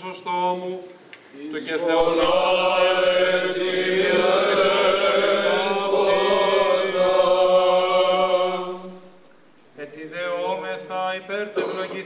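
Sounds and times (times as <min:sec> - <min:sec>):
men singing liturgical chant: 0:01.5 - 0:09.0
low held drone note: 0:02.2 - 0:09.6.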